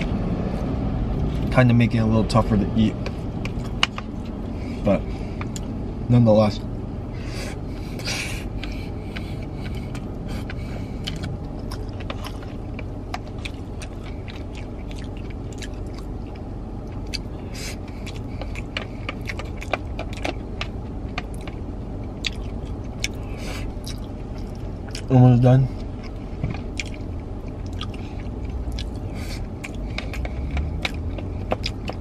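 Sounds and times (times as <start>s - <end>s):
low vehicle rumble: 0.0s - 32.0s
chewing and mouth sounds: 7.8s - 32.0s.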